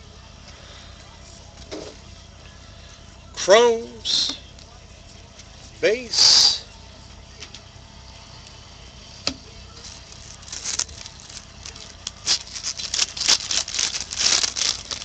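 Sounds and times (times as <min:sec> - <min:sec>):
trading cards flicking and rustling: 0:09.7 - 0:15.0.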